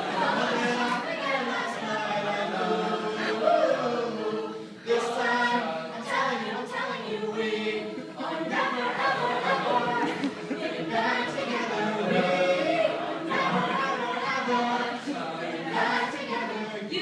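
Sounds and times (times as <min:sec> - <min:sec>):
a cappella group singing: 0:00.0 - 0:17.0.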